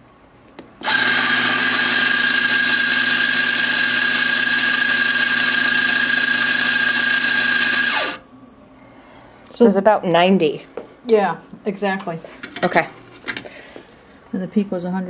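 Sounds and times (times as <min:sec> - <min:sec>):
coffee grinder motor grinding beans: 0:00.8 - 0:08.2.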